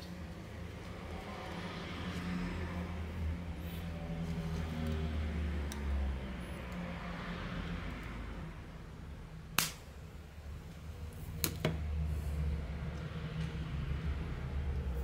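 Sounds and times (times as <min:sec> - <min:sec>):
spot welder sharp crack: 0:09.6 - 0:09.9.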